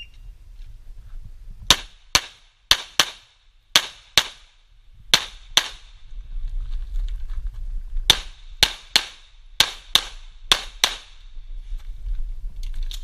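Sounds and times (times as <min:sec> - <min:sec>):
pistol shots: 0:08.1 - 0:11.2.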